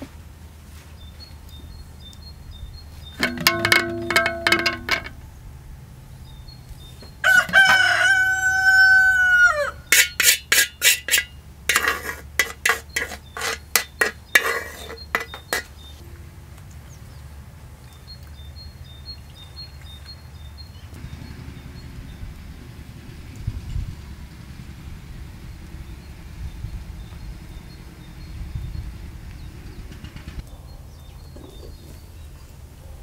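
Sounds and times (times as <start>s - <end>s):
rooster crowing: 7.2s - 9.9s
chickens clucking and cackling: 7.2s - 11.0s.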